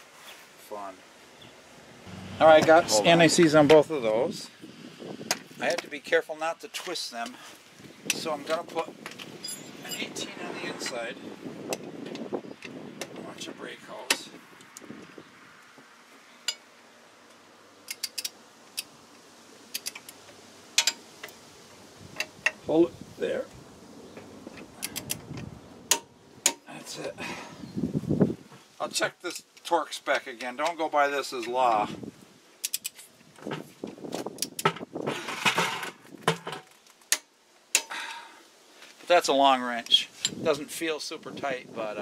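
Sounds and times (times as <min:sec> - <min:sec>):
wrenches clinking and rattling: 0:09.4 - 0:10.2
sharp metallic clicks: 0:17.8 - 0:18.9, 0:19.7 - 0:20.2, 0:32.6 - 0:33.0
socket wrench metallic clicks: 0:32.6 - 0:33.0.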